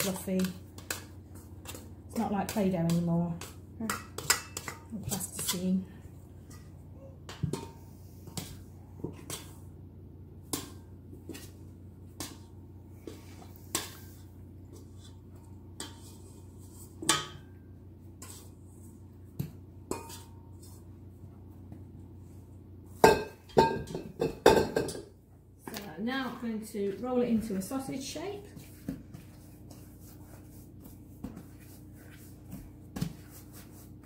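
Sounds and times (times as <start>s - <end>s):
low steady hum: 0.0s - 34.0s
metal bowl knocking and clinking: 6.5s - 8.5s, 23.0s - 25.1s.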